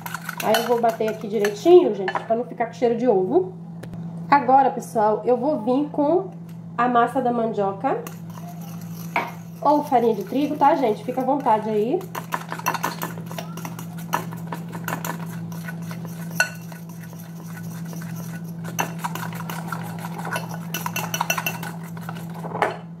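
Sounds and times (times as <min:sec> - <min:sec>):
utensil scraping glass bowl: 0:00.0 - 0:01.7, 0:08.0 - 0:22.7
steady low hum: 0:00.0 - 0:23.0.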